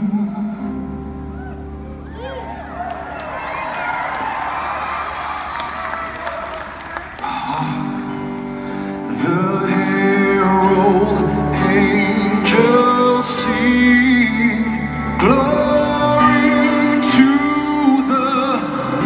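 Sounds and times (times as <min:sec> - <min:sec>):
man singing rock vocals: 0:09.1 - 0:19.0.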